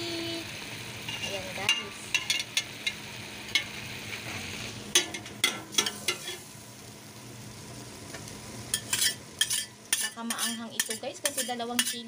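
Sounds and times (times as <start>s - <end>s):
chicken sizzling in a pot: 0.0s - 12.0s
metal spatula scraping a pot: 8.7s - 12.0s.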